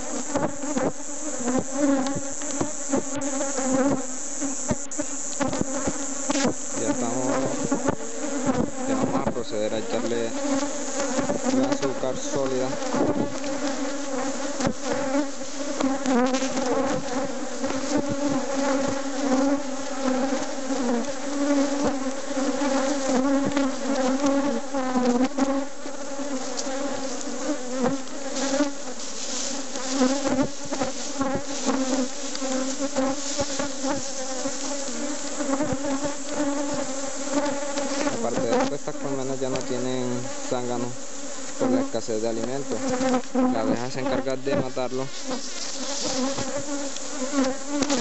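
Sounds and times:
bees buzzing: 0:00.0 - 0:48.0.

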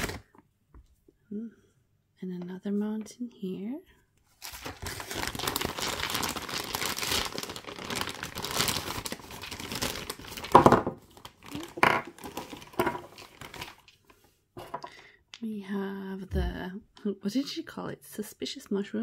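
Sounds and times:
plastic bag and bubble wrap crinkling: 0:00.0 - 0:00.3, 0:04.4 - 0:14.2.

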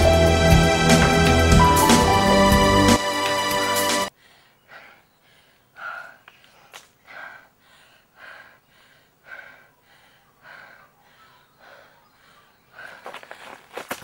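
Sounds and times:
gasping breaths: 0:04.2 - 0:13.5.

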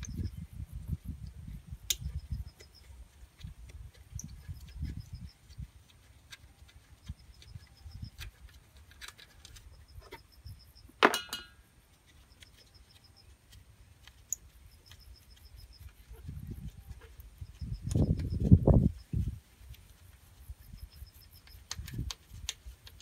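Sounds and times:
sharp metallic clink: 0:11.0 - 0:11.7.

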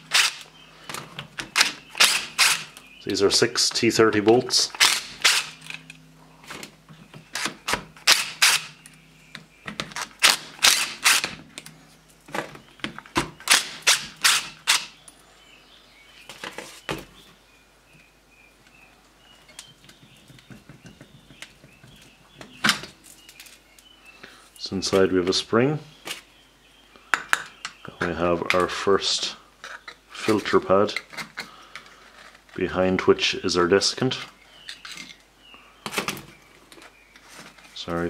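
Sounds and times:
cordless driver bursts: 0:00.1 - 0:00.5, 0:01.5 - 0:02.7, 0:04.7 - 0:05.7, 0:07.4 - 0:08.8, 0:10.2 - 0:11.4, 0:13.4 - 0:15.0.

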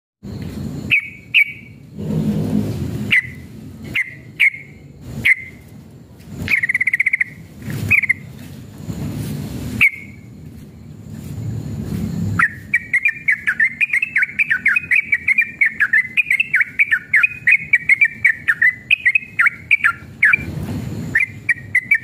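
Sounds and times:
bird chirping sharply: 0:00.8 - 0:01.8, 0:03.0 - 0:05.6, 0:06.4 - 0:08.3, 0:09.8 - 0:10.3, 0:12.4 - 0:20.5, 0:21.1 - 0:22.0
bird rattling trill: 0:00.8 - 0:01.8, 0:02.9 - 0:05.8, 0:06.4 - 0:08.4, 0:09.6 - 0:10.3, 0:12.2 - 0:22.0.

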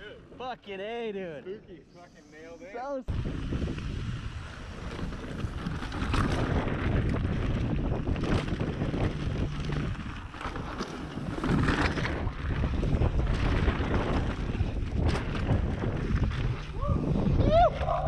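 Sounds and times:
tyres rumbling on dirt: 0:03.1 - 0:18.0
wind buffeting microphone: 0:03.1 - 0:18.0
bike knocks and rattles: 0:04.6 - 0:17.8.

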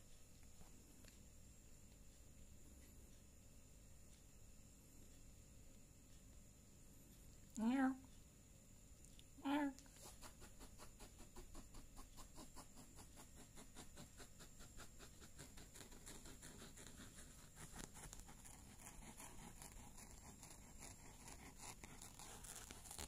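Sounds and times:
kitten tongue licking fur: 0:09.8 - 0:23.0.

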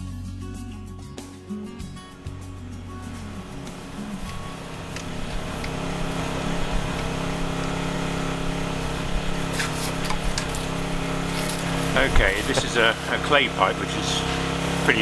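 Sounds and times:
engine idling: 0:01.5 - 0:15.0.

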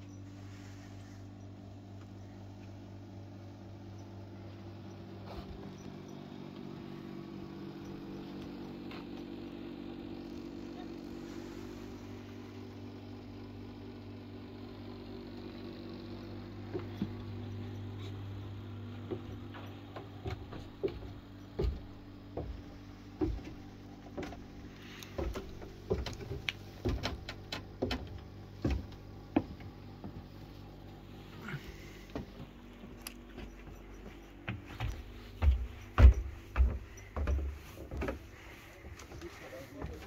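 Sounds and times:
low hum: 0:00.0 - 0:40.0
irregular knocks and clicks: 0:18.9 - 0:30.3, 0:32.1 - 0:40.0.

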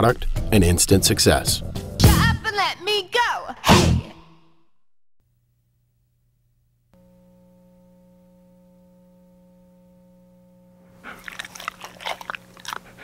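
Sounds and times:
faint electrical hum: 0:05.2 - 0:13.0
dog mouth clicking and smacking: 0:11.1 - 0:13.0.

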